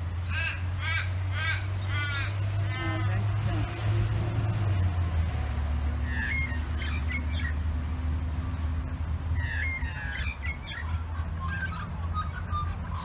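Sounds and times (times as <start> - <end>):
magpies squawking: 0.2 - 4.9, 6.0 - 7.7, 9.3 - 13.0.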